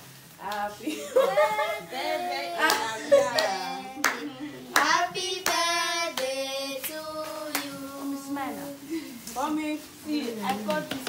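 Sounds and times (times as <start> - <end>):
group of people singing: 0.4 - 8.6
hand claps: 2.6 - 7.8.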